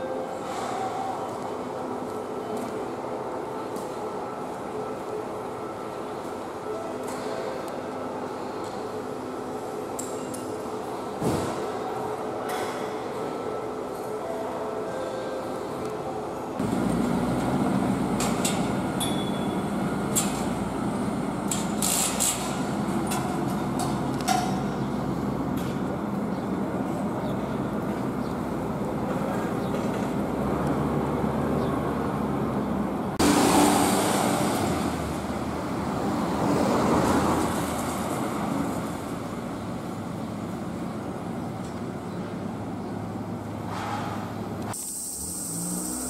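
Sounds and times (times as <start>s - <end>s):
loud rush of traffic: 16.2s - 46.0s
road noise hum: 16.5s - 46.0s
car passing: 33.2s - 39.1s.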